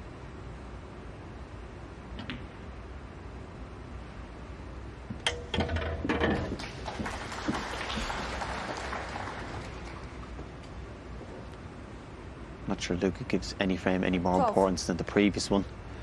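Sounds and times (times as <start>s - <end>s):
audience applause: 6.6s - 10.2s.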